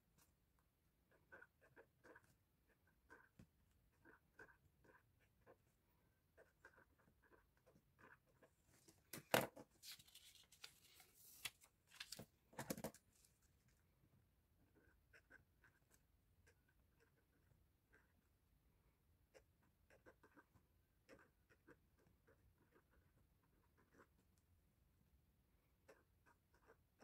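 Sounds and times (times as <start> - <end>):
paper rustling: 9.7 - 13.4.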